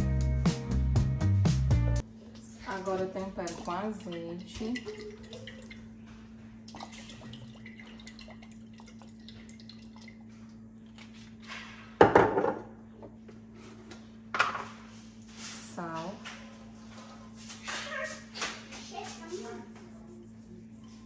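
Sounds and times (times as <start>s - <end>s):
steady low hum: 2.0s - 21.0s
oil dripping: 6.7s - 11.1s
glass bottle knocking on counter: 12.0s - 12.6s.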